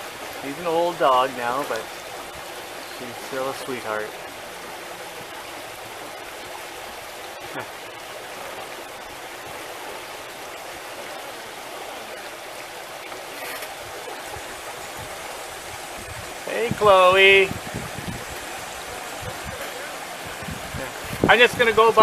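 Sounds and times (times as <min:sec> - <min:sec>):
water rushing along boat hulls: 0:00.0 - 0:22.0.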